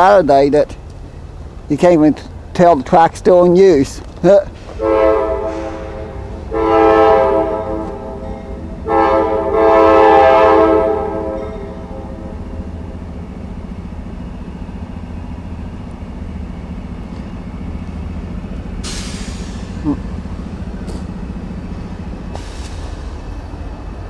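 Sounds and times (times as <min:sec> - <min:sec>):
train rumbling: 0:00.0 - 0:24.0
locomotive air horn blasts: 0:04.7 - 0:12.8.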